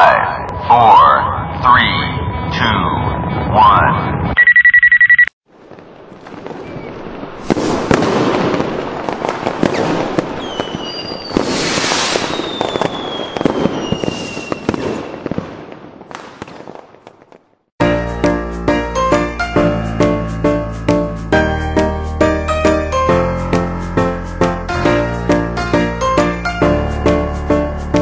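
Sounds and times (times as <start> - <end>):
electronic beep: 4.4 - 5.4
fireworks crackling and banging: 5.4 - 17.7
high whistle gliding down: 10.4 - 14.7.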